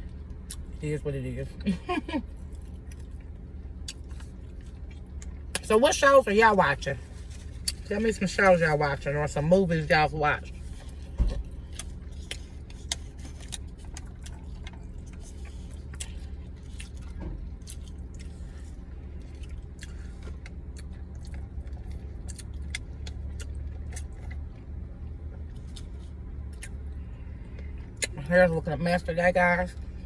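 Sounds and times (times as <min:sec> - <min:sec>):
low car hum: 0:00.0 - 0:30.0
chewing with mouth clicks: 0:02.4 - 0:05.6, 0:10.8 - 0:24.6, 0:25.3 - 0:28.2.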